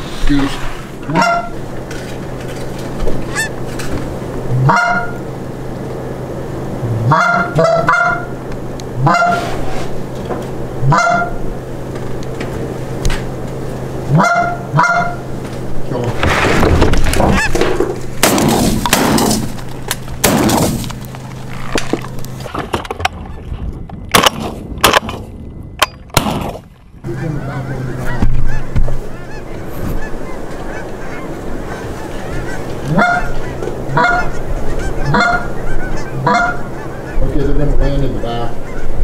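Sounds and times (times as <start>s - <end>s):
geese honking: 1.0s - 15.8s, 17.2s - 22.5s, 27.0s - 39.0s
sharp knocks: 16.3s - 19.6s, 20.2s - 20.9s.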